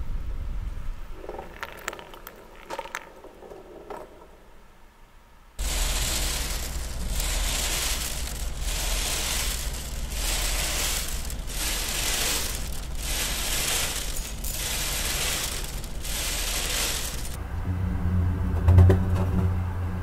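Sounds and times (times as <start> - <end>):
mechanical rattling and crackling: 5.6 - 17.4.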